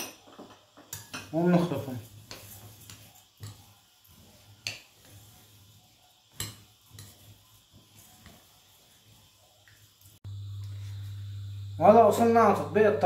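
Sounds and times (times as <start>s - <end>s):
spoon stirring rice: 0.8s - 10.0s.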